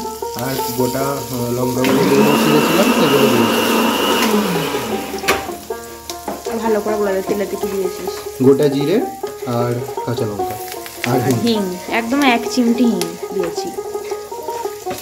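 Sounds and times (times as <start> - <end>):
chillies sizzling in hot oil: 0.0 - 15.0
spatula stirring in pan: 13.2 - 15.0.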